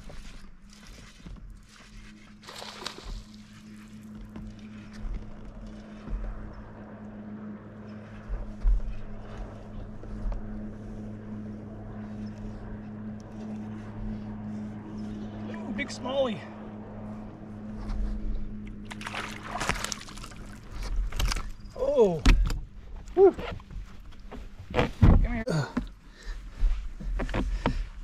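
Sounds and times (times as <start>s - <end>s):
trolling motor humming: 0.0s - 28.0s
wind thumps on microphone: 24.6s - 25.4s.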